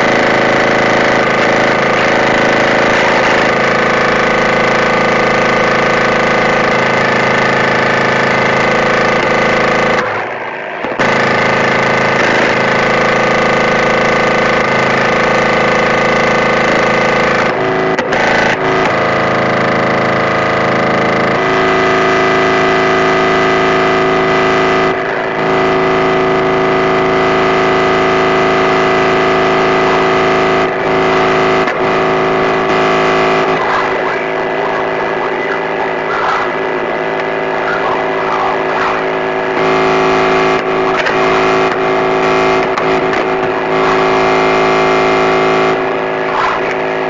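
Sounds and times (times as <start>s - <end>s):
distorted electronic noise: 0.0s - 47.0s
droning tones: 0.0s - 47.0s
wavering squeals: 29.3s - 42.5s.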